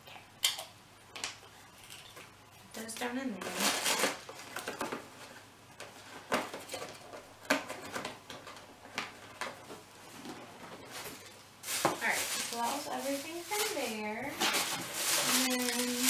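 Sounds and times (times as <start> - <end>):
hands handling packaging: 3.4 - 16.0.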